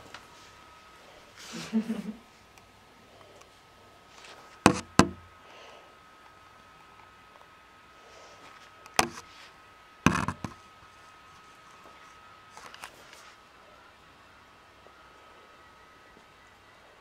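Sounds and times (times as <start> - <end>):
faint high hum: 0.0 - 17.0.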